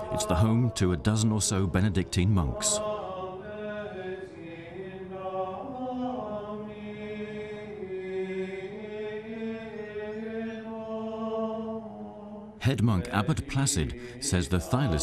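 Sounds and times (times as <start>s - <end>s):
men chanting: 0.0s - 15.0s.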